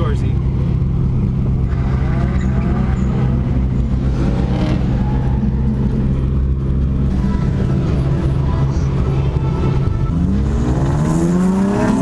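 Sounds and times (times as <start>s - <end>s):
truck engine running at low revs: 0.0s - 12.0s.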